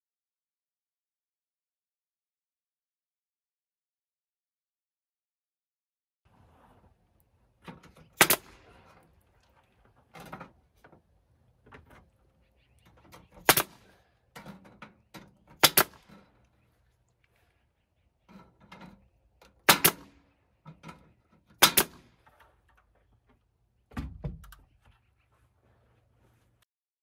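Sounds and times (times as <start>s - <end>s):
handling clicks and knocks: 7.5s - 16.5s, 20.6s - 25.0s
nail gun firing: 8.1s - 9.0s, 13.4s - 14.0s, 15.5s - 16.2s, 19.6s - 20.2s, 21.6s - 22.3s.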